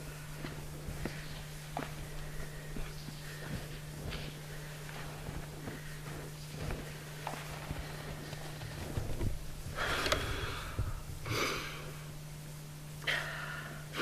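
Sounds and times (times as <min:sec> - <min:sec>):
person breathing hard: 0:00.0 - 0:09.1, 0:09.7 - 0:12.1, 0:13.0 - 0:14.0
footsteps in snow: 0:00.0 - 0:09.5.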